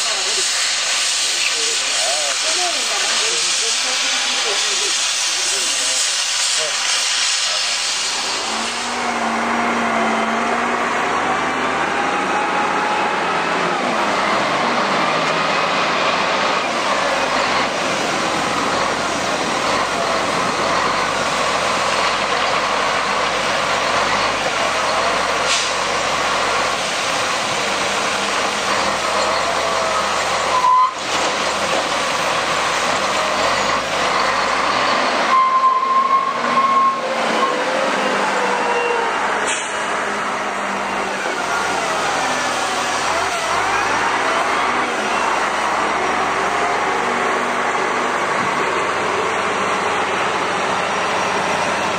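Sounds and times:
diesel engine under load: 0.0 - 51.9
hydraulic whine: 27.3 - 51.9.

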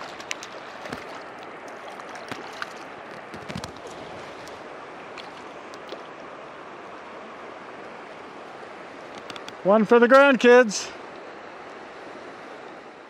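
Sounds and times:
fish splashing: 0.0 - 6.1
creek flowing: 0.0 - 13.0.

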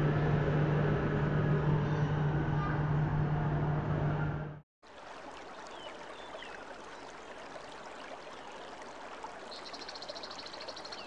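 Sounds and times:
flowing water: 4.8 - 11.0.

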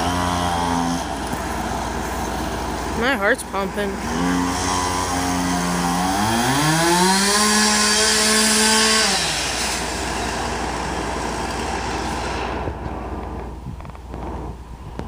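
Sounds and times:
chainsaw cutting wood: 0.0 - 3.1, 3.9 - 13.5
steady rushing noise: 9.3 - 15.0.

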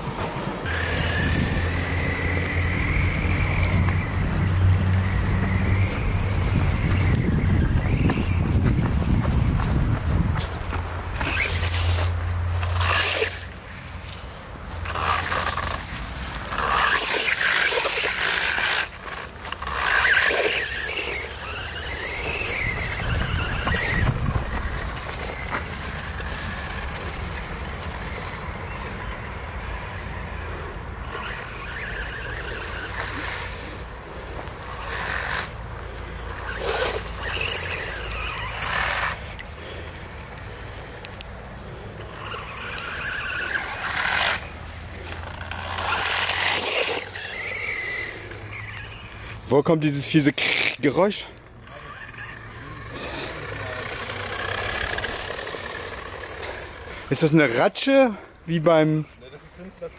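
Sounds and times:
rc car drivetrain grinding squeal: 0.0 - 59.9.

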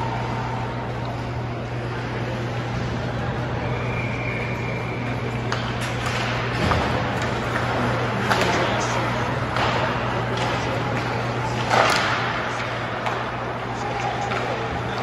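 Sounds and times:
steady low hum: 0.0 - 15.0
hockey sticks and puck clacking: 4.8 - 15.0
scattered voices: 6.4 - 15.0.

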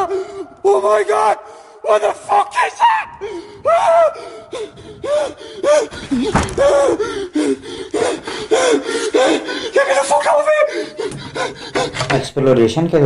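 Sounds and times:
man gasping and panting: 0.0 - 0.6, 3.2 - 12.2
bump: 4.8 - 7.2.

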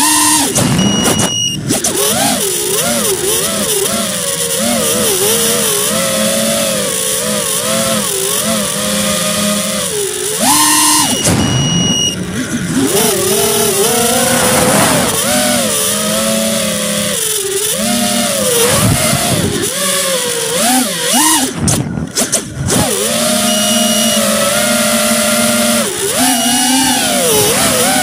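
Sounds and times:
model aircraft motors whining: 0.0 - 28.0
rushing wind noise: 12.8 - 16.3.

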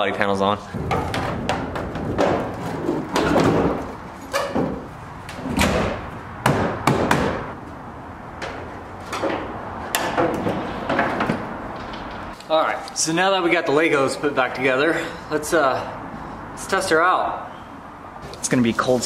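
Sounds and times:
car door opening and shutting: 0.8 - 7.5
car body panels knocking: 0.8 - 7.6.

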